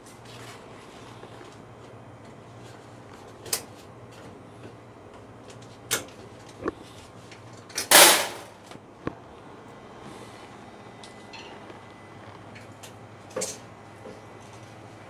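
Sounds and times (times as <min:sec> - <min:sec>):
clicks and knocks on sheet metal: 0:07.8 - 0:08.5.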